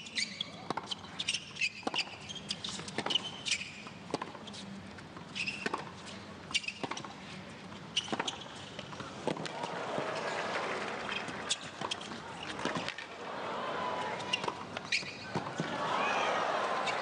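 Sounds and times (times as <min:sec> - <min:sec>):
shoe squeaks: 0:00.0 - 0:04.7, 0:05.3 - 0:07.1, 0:07.9 - 0:08.9, 0:11.0 - 0:13.0, 0:14.2 - 0:15.7
tennis ball bouncing: 0:00.7 - 0:01.0, 0:01.6 - 0:04.4, 0:05.6 - 0:07.1, 0:08.0 - 0:13.1, 0:13.9 - 0:15.8.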